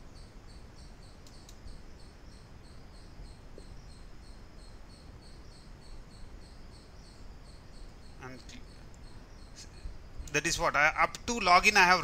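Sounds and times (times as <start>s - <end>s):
faint high-pitched chirping: 0.0s - 12.0s
light clicks: 1.2s - 1.6s.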